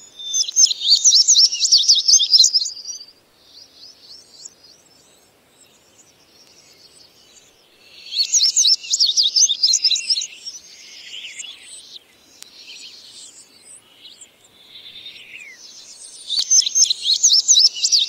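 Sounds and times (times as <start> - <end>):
bunting singing: 5.7 - 18.0.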